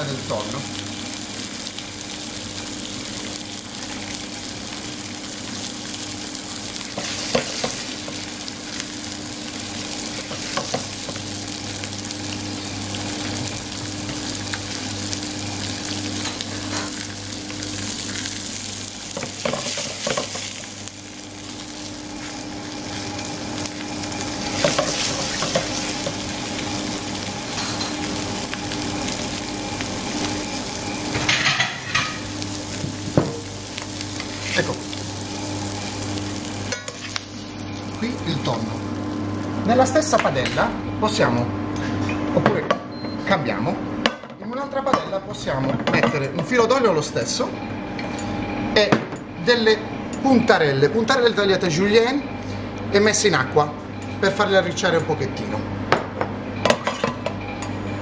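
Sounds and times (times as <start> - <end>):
fish sizzling in frying pan: 0.0 - 40.8.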